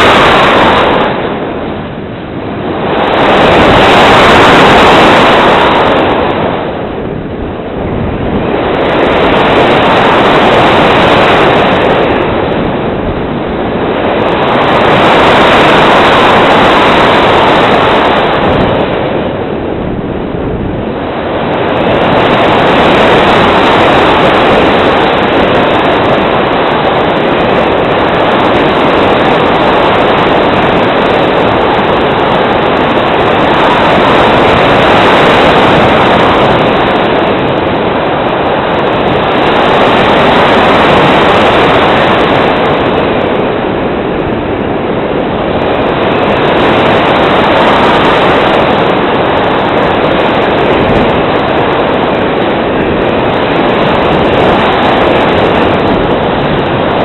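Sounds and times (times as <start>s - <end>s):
wind rushing over microphone: 0.0s - 57.0s.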